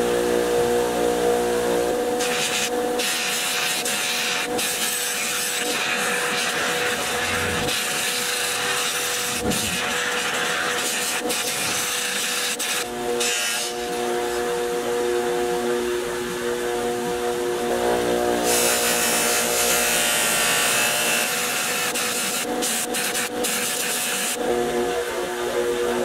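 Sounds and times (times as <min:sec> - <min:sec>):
bench buffer motor hum: 0:00.0 - 0:26.0
metal part rubbing on buffing wheel: 0:03.4 - 0:11.8.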